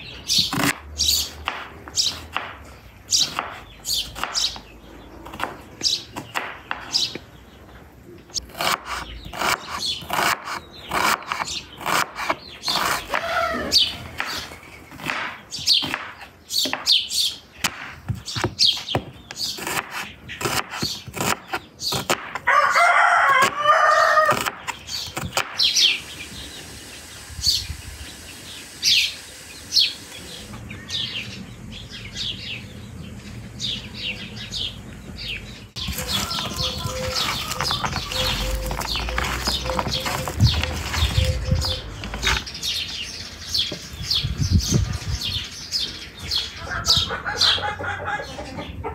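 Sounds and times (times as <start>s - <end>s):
knife chopping on wooden board: 1.4s - 2.6s, 3.2s - 4.6s, 6.2s - 7.0s, 8.4s - 13.3s, 14.2s - 16.9s, 17.6s - 22.5s
rooster crowing: 13.1s - 13.8s, 22.5s - 24.4s, 35.8s - 38.9s
high bird chirps: 24.6s - 47.7s.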